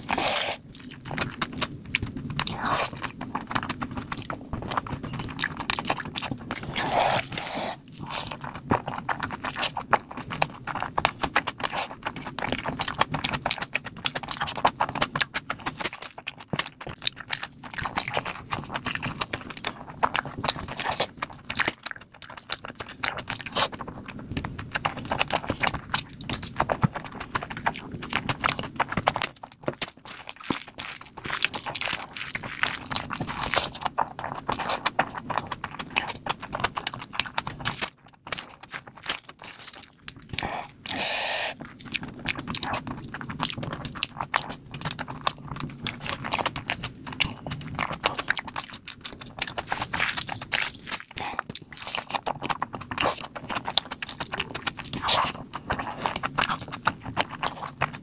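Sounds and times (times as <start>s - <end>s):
wet chewing and lip smacking: 0.0s - 58.0s.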